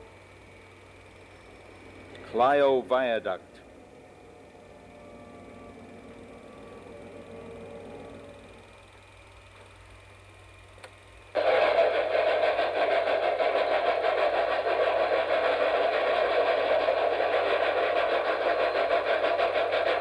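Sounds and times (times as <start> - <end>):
machine clattering: 11.4 - 20.0.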